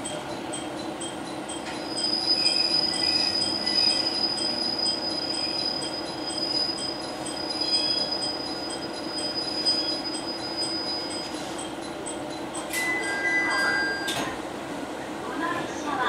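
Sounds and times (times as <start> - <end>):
low drone of running train: 0.0 - 16.0
train brakes squealing: 1.7 - 11.9.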